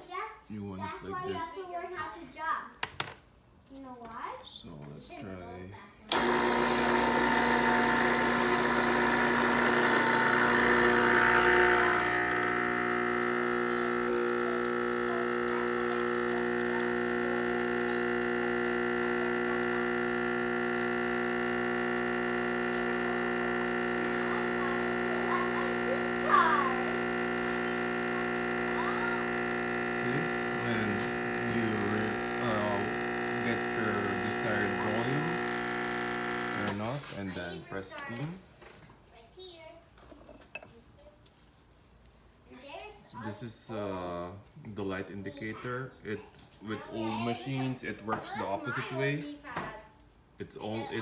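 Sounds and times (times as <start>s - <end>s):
espresso machine pump humming: 6.1s - 38.3s.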